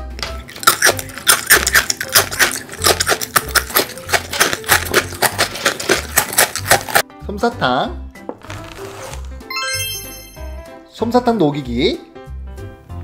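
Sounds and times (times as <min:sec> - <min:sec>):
crunchy snack being chewed: 0:00.2 - 0:07.0, 0:08.4 - 0:09.3.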